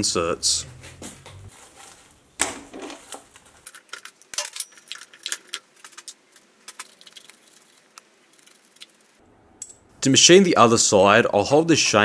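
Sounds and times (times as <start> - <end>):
metal parts clinking: 3.6 - 7.2.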